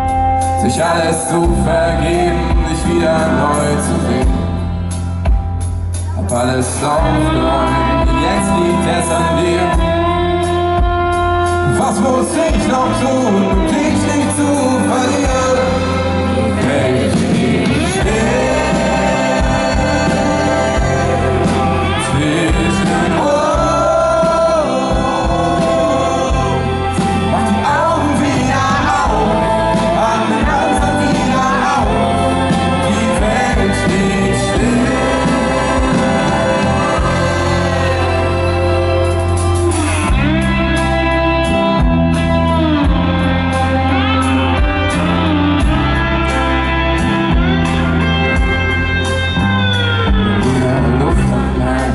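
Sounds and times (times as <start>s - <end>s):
person singing: 0.0s - 5.0s, 5.9s - 42.2s
acoustic guitar: 0.0s - 51.9s
drums steady beat: 1.4s - 11.8s, 12.4s - 46.4s.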